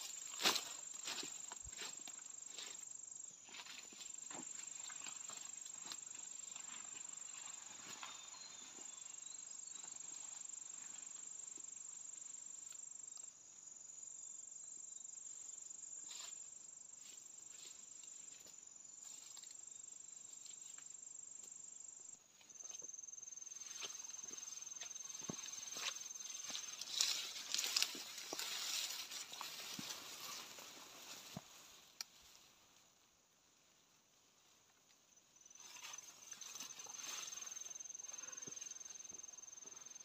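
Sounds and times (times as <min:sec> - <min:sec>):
footsteps through undergrowth: 0:00.0 - 0:11.1, 0:17.0 - 0:19.6, 0:23.5 - 0:32.6, 0:35.5 - 0:40.0
insects droning: 0:00.0 - 0:40.0.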